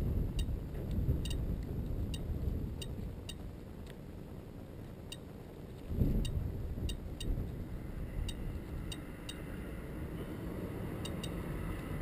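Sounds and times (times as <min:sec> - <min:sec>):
steady low rumble: 0:00.0 - 0:12.0
geiger counter clicking: 0:00.3 - 0:00.6, 0:01.2 - 0:04.0, 0:05.1 - 0:07.4, 0:11.0 - 0:11.9.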